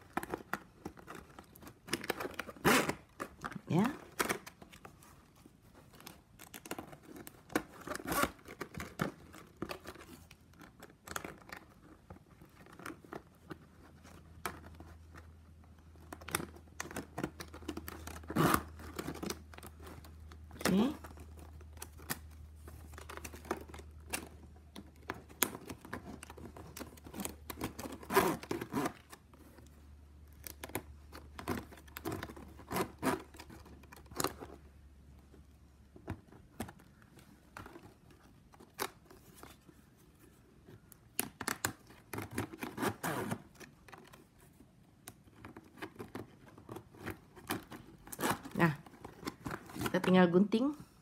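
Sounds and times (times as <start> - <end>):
plastic strapping rustling: 0.0 - 51.0.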